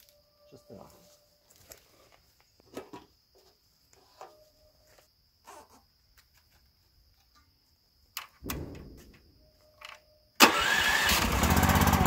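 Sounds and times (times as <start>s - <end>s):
gas engine starting and running: 10.4s - 12.0s.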